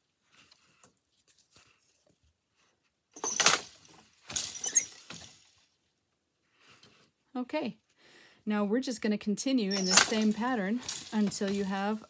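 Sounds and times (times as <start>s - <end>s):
loom wooden clattering knocks: 3.2s - 5.5s, 9.7s - 12.0s.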